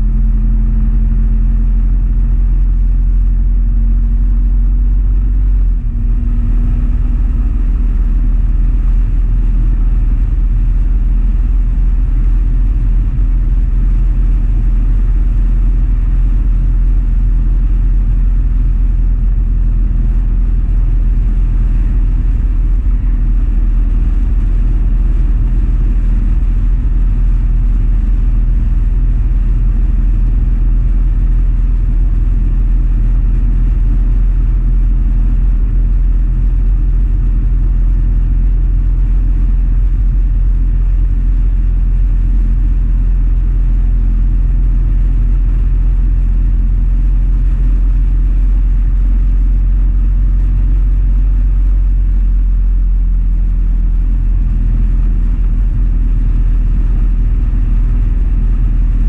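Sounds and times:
motorcycle engine running: 0.0 - 35.7, 37.1 - 43.2, 54.3 - 59.0.

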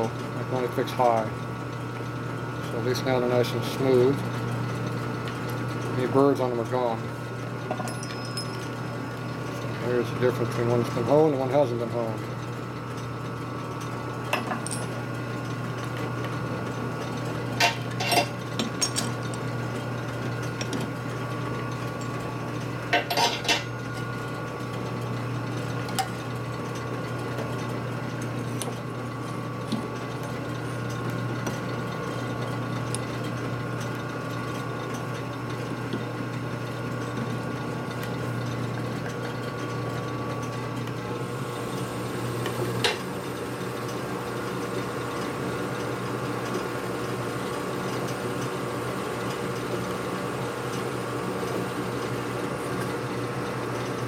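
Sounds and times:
steady shop hum: 0.0 - 54.0
metal parts clinking on chuck: 22.9 - 23.6.

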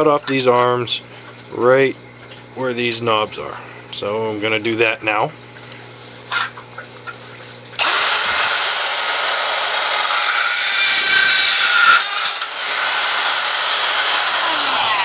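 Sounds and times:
rotary tool high whine: 7.8 - 15.0.

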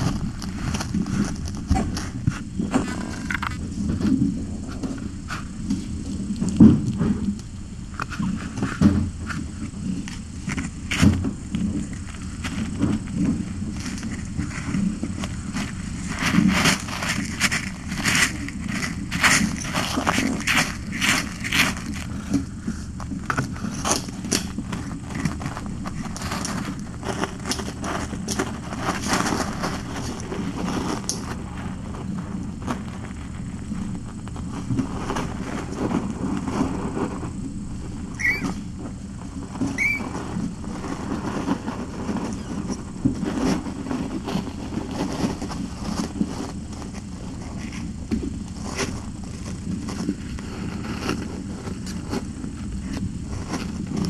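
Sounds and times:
kittens scuffling on blanket: 0.0 - 54.0
kitten mews: 38.2 - 38.6, 39.7 - 40.1.

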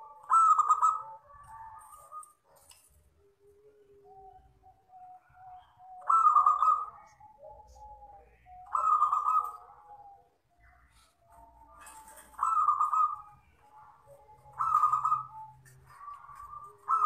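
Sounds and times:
dove cooing: 0.0 - 17.0.

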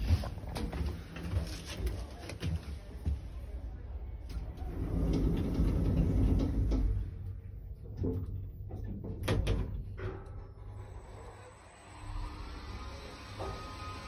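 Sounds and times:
lift doors sliding closed: 4.4 - 7.3.

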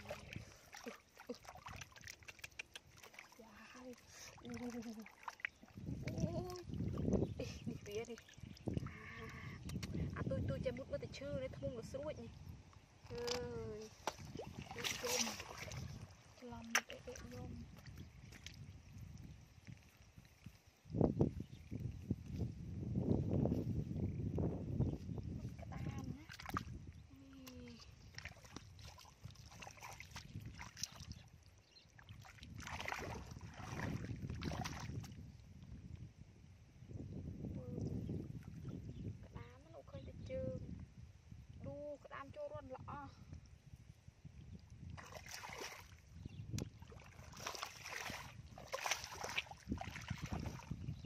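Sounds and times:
feet wading in muddy water: 0.0 - 22.8, 24.3 - 35.7, 44.6 - 51.0.

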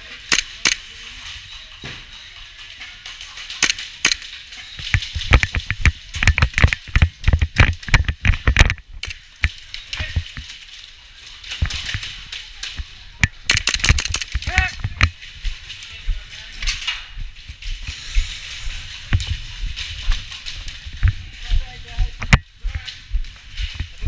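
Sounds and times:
fast sharp knocks and clatter: 3.5 - 10.5, 13.2 - 15.2.

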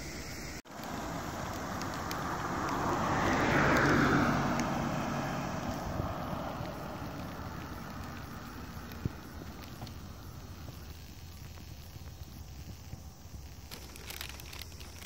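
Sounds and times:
car passing by: 0.0 - 10.9.

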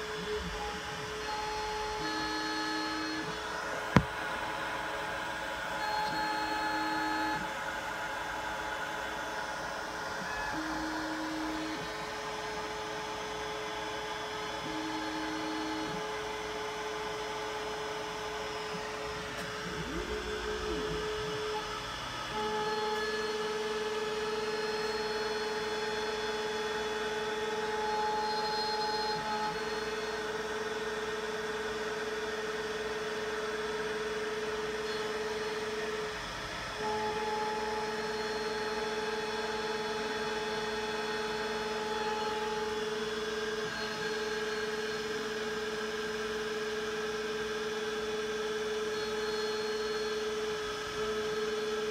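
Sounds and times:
router spindle running: 0.0 - 51.9
stepper motors whining: 9.1 - 30.4.

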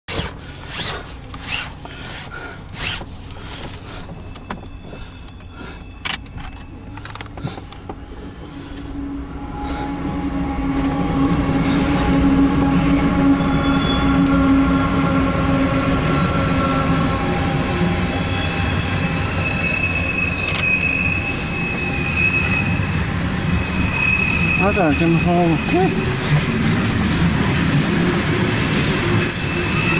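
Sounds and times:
high wheel flange squeal: 2.8 - 7.1, 8.0 - 29.9
freight train cars rumbling past: 7.6 - 29.9.

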